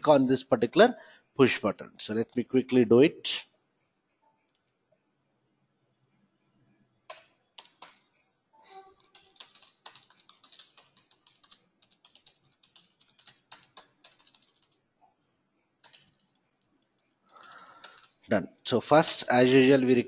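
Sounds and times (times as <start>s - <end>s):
computer keyboard typing: 7.1s - 8.0s, 9.0s - 14.8s, 15.8s - 18.2s.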